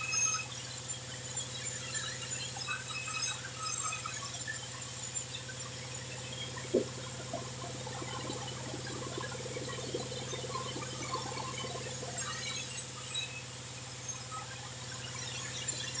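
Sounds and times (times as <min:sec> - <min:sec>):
saw blade squealing: 0:00.0 - 0:00.6, 0:02.6 - 0:04.1, 0:12.2 - 0:14.4.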